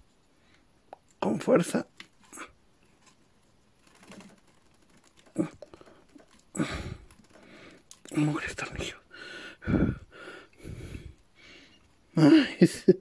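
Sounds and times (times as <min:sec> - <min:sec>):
rustling: 0:01.8 - 0:08.8.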